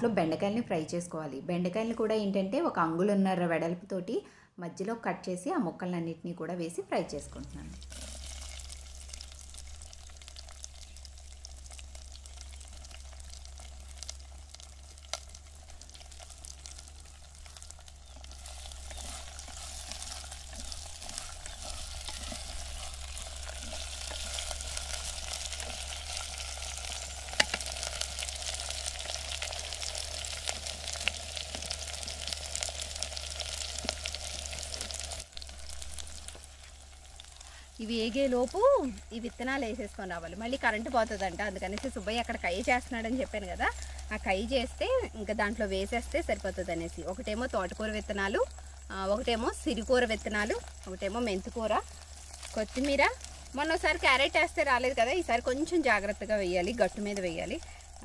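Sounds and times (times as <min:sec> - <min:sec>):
food sizzling in hot oil: 0:07.2 - 0:58.0.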